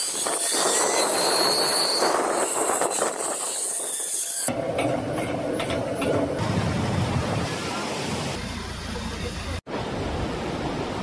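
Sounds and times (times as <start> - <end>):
zipline trolley rushing on cable: 0.0 - 3.8.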